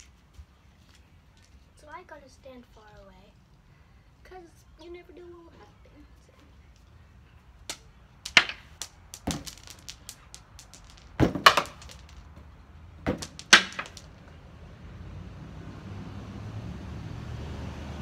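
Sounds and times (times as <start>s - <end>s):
rocks clattering on concrete: 7.7s - 14.3s.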